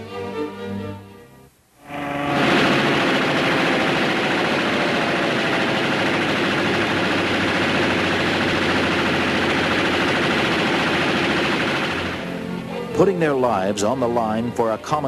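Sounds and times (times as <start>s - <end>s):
aircraft piston engine drone: 1.8s - 13.0s.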